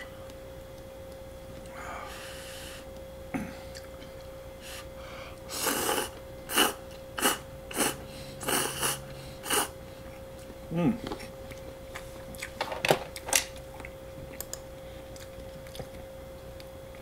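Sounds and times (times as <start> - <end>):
man slurping noodles: 5.5 - 9.7.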